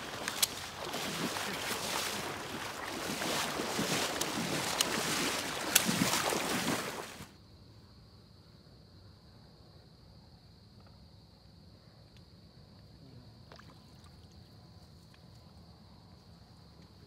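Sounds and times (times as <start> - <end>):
splashy clicks: 0.0 - 7.3
wading through water sloshing: 0.0 - 7.3.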